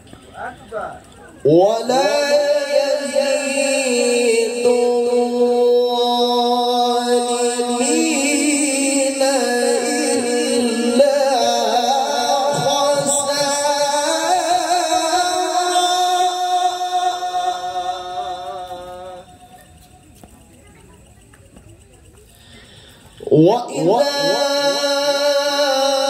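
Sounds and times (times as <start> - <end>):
man chanting over loudspeakers: 1.4 - 19.6, 23.2 - 26.0.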